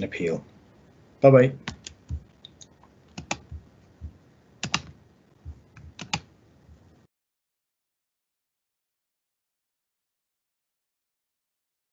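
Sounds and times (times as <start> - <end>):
computer keys clicking: 1.6 - 3.6, 4.6 - 6.3
soft low bumps: 1.8 - 2.4, 3.3 - 4.2, 5.4 - 7.0.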